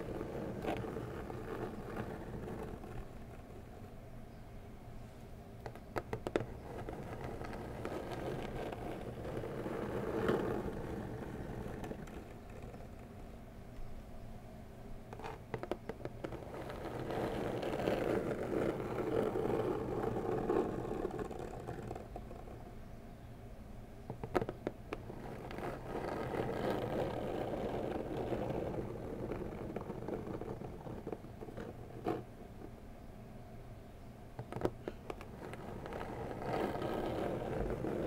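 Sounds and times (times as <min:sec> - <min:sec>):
fingernails scratching cardboard: 0:00.0 - 0:03.2, 0:05.7 - 0:13.0, 0:15.2 - 0:22.4, 0:24.3 - 0:32.2, 0:34.4 - 0:38.0.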